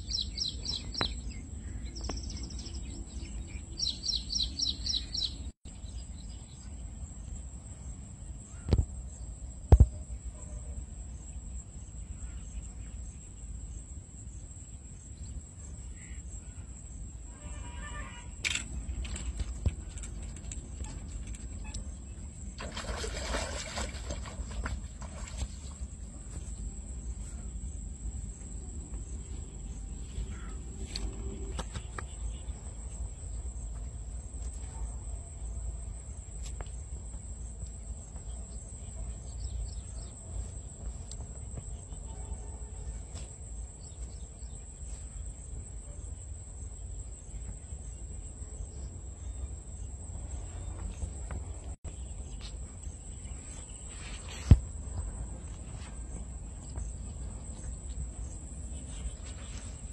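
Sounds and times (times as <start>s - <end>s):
fish splashing in water: 22.6s - 25.8s.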